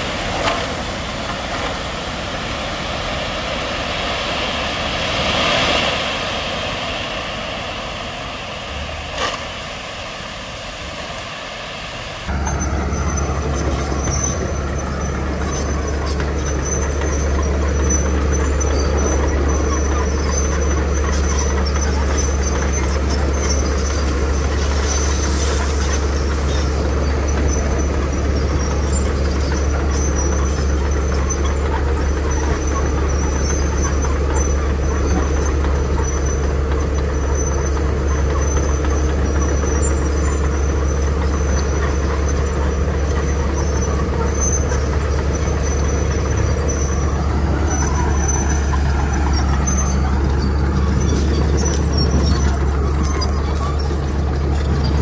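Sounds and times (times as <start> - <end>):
bulldozer pushing gravel: 0.0 - 10.7, 12.2 - 55.0
heavy diesel machinery droning: 0.0 - 55.0
faint high squeaks: 12.3 - 55.0.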